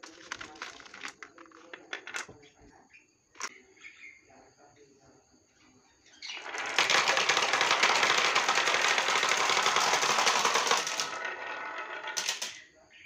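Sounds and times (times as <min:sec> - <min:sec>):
glass marbles rolling and clattering: 0:00.0 - 0:02.4, 0:06.2 - 0:12.7.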